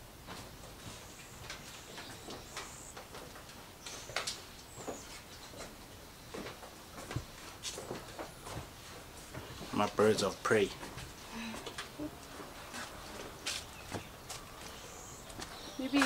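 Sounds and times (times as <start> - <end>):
footsteps on wooden floorboards: 0.2 - 16.0
high bird chirps: 13.8 - 16.0.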